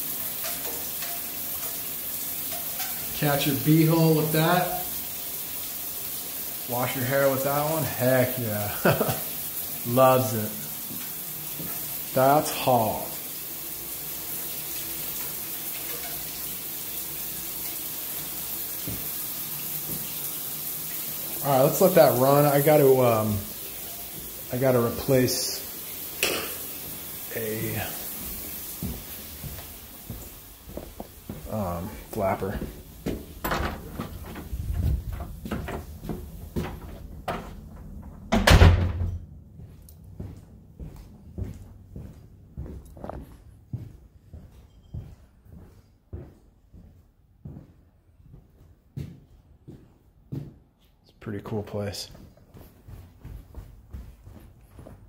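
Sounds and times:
shower water splashing into drain: 0.0 - 39.0
objects knocking and clattering: 33.1 - 39.2.

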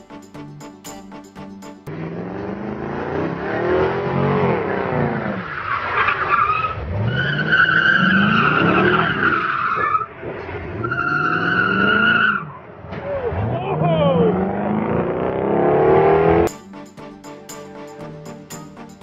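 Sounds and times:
car engine revving: 1.9 - 5.8.

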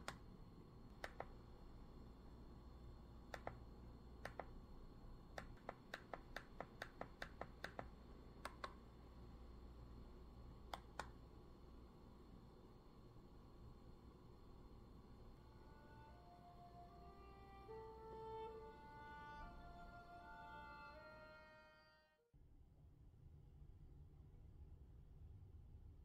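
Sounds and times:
remote control button clicks: 1.0 - 1.4, 3.3 - 3.6, 4.2 - 4.6, 5.4 - 8.8.

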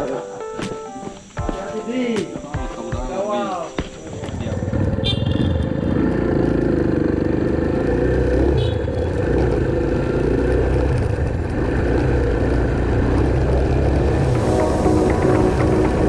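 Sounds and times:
motorcycle engine running: 4.5 - 14.4.

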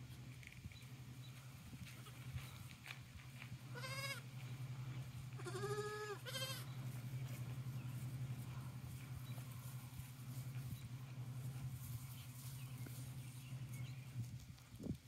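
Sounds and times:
goat kids bleating: 3.7 - 4.4, 5.3 - 7.4.

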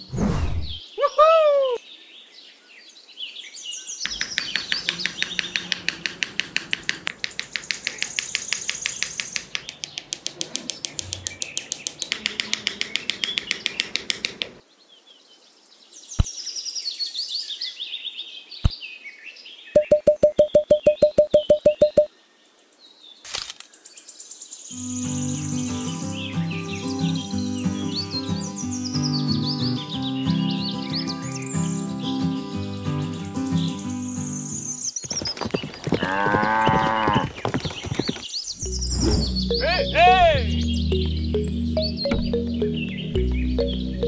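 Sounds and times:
small birds chirping: 0.6 - 44.0
rapid even clicks: 4.1 - 14.6
short beeps: 19.8 - 22.1.

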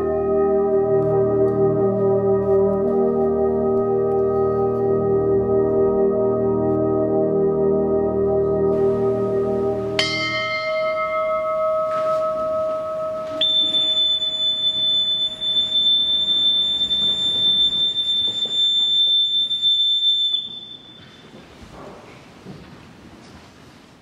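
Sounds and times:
high whistle note: 8.7 - 21.4
bell ringing: 10.0 - 21.3.

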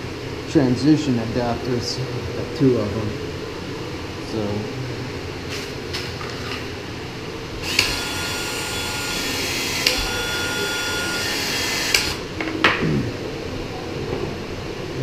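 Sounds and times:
pipe expansion tool running: 7.5 - 12.4.

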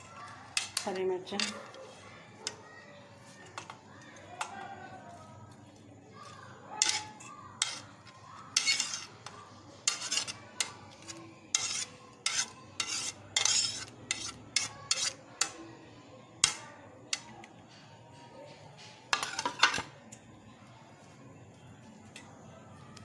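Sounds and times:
cutlery scraping on plate: 0.6 - 1.8, 6.8 - 15.6, 18.8 - 20.0.

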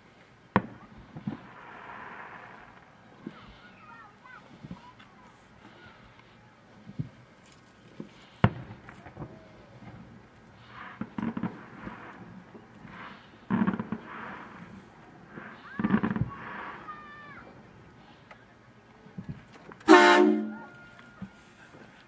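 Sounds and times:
vehicle horn honks: 19.9 - 20.7.

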